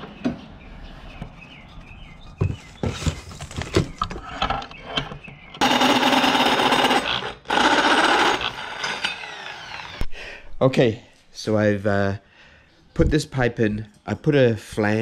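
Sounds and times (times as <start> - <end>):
drill cutting into metal: 5.6 - 10.1.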